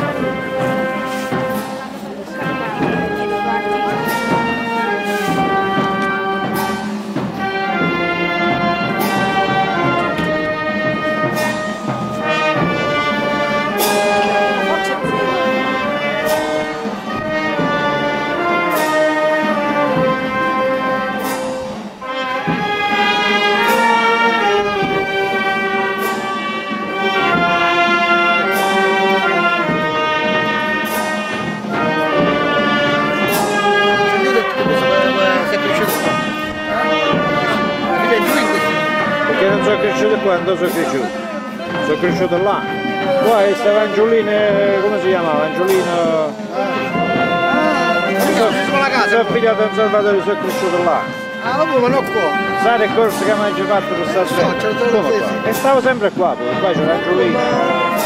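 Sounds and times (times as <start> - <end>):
drum and cymbal strokes: 0.0 - 43.6
brass band playing funeral march: 0.0 - 58.0.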